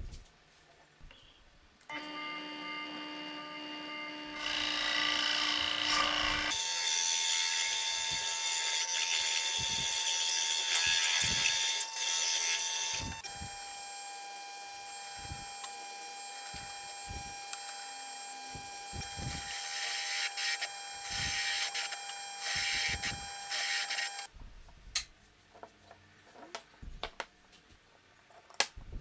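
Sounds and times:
drill press motor humming: 1.9s - 6.7s, 7.9s - 24.3s
drill bit boring into wood: 4.3s - 13.7s, 15.0s - 24.3s.

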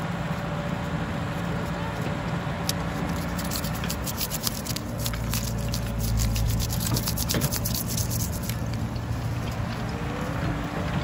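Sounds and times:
excavator diesel engine: 8.6s - 11.0s.

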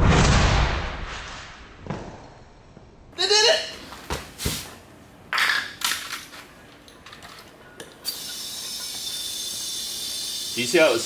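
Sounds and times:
compressed air hissing: 8.0s - 11.0s.

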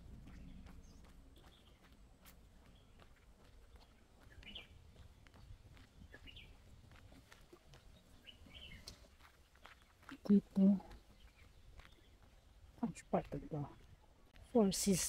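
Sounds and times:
faint low rumble: 0.0s - 7.9s
small bird chirping: 2.6s - 6.7s, 7.7s - 14.0s.

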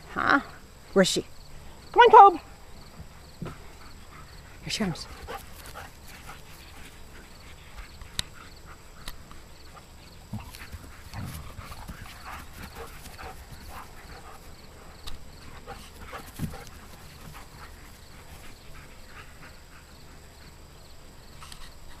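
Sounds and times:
dogs panting: 2.4s - 22.0s
paws scuffling on grass: 3.0s - 19.8s
dog grunting: 10.3s - 12.0s.

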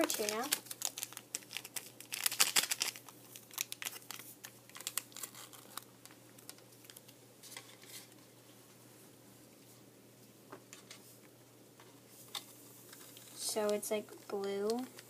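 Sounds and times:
foil packet crinkling: 0.0s - 8.2s.

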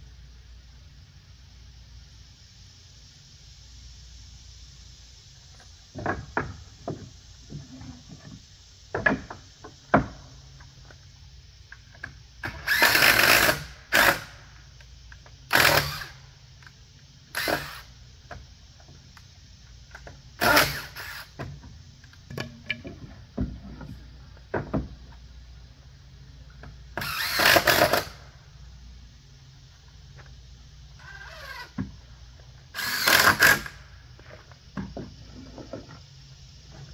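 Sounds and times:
knocks and clicks of wood and tools: 5.6s - 11.0s, 19.9s - 25.3s, 32.8s - 36.1s
cordless drill driving screws: 12.5s - 14.3s, 15.5s - 16.2s, 17.4s - 17.9s, 20.4s - 21.3s, 27.0s - 28.2s, 32.8s - 33.8s.

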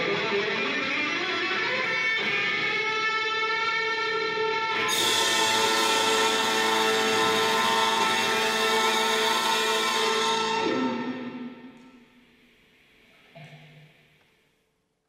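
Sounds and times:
chamber ensemble playing sustained tones: 4.9s - 11.6s.

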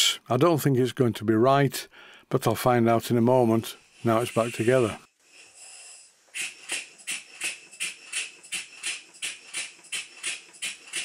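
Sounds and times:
faint air hiss: 1.8s - 6.8s.

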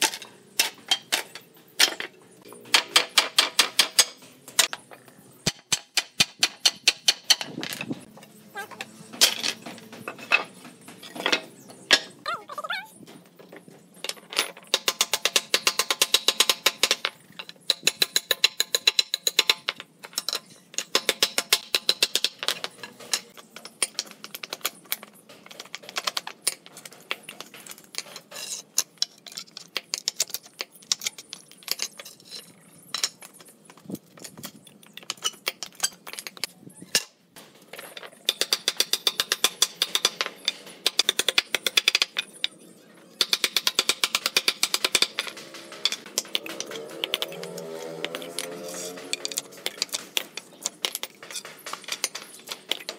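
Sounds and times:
hammer striking nails: 14.6s - 17.0s, 43.2s - 52.9s.

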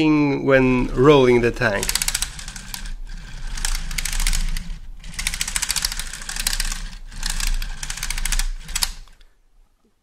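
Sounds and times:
plastic track links clicking: 1.7s - 9.3s.

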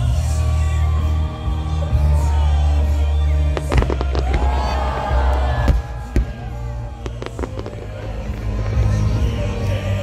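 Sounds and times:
firework shells bursting: 3.6s - 8.6s.

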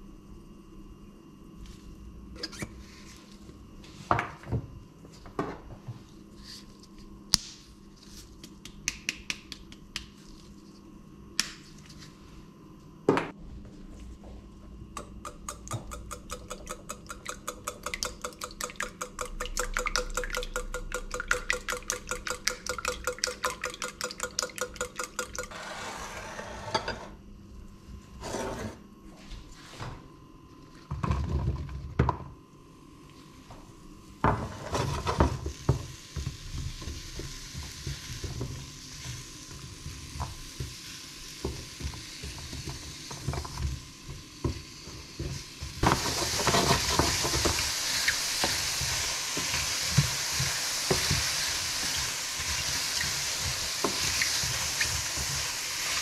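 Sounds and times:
whisk clinking on ceramic bowl: 15.2s - 25.6s.

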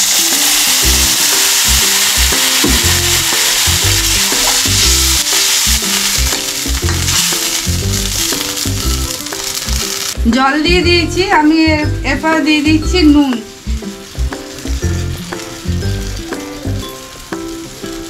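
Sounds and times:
water poured into pan: 0.0s - 10.2s
background music with steady beat: 0.0s - 18.0s
vegetables sizzling in oil: 0.0s - 18.0s.

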